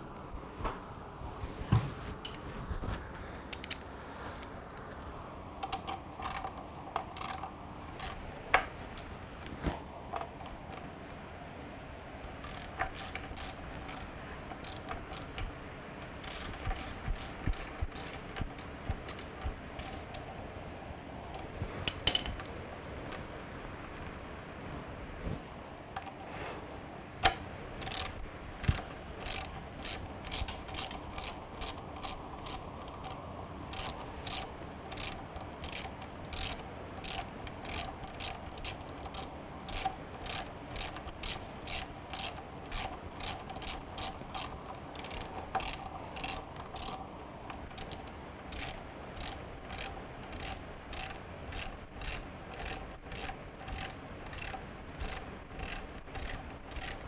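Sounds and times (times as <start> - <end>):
socket ratchet clicking: 4.8 - 8.2, 12.3 - 15.5, 16.1 - 20.3, 27.2 - 57.0.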